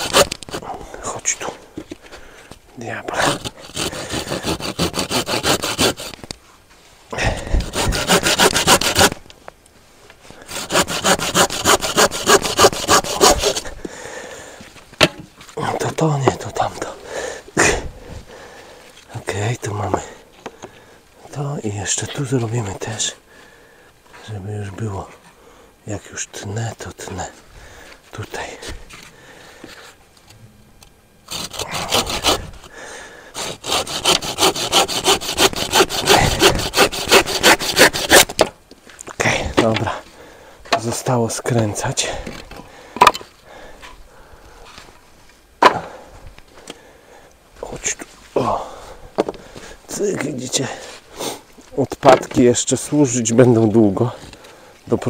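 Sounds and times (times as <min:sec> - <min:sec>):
hand saw cutting wood: 0:00.0 - 0:00.6, 0:03.2 - 0:06.2, 0:07.4 - 0:09.2, 0:10.4 - 0:13.7, 0:31.3 - 0:32.7, 0:33.3 - 0:38.5.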